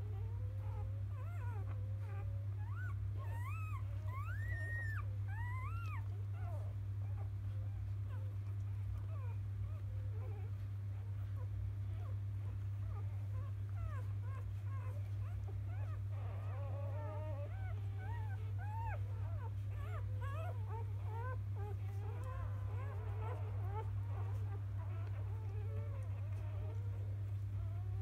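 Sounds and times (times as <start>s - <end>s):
steady low hum: 0.0s - 28.0s
puppies squeaking and whimpering: 0.6s - 28.0s.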